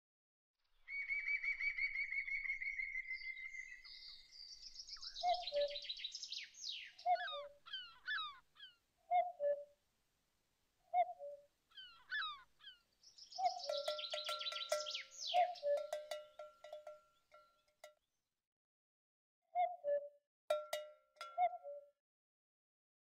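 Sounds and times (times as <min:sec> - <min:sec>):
songbirds trilling and chirping: 0:00.8 - 0:09.6, 0:11.0 - 0:17.9.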